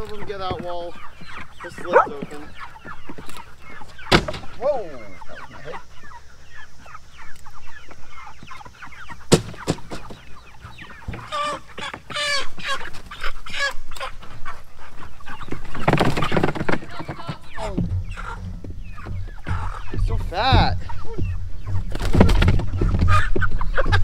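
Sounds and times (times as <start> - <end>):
chickens clucking and peeping: 0.0 - 24.0
chickens scuffling: 0.0 - 24.0.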